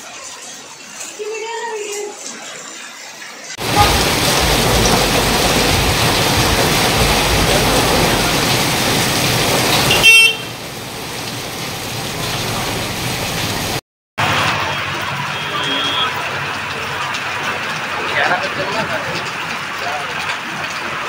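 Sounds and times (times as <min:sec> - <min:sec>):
heavy rain pouring on street: 0:00.0 - 0:21.0
vehicle horn toot: 0:09.8 - 0:10.6, 0:15.2 - 0:16.2.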